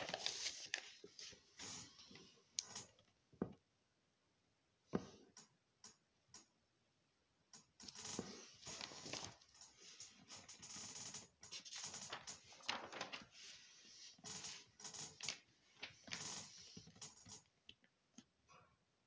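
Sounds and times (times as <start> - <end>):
paper rustling and scraping: 0.0 - 2.2, 7.9 - 17.4.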